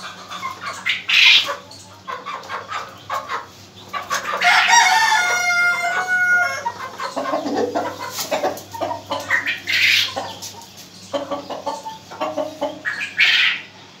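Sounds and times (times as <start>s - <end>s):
chickens clucking: 0.0s - 14.0s
loud chicken calls: 0.0s - 14.0s
rooster crowing: 4.4s - 6.8s.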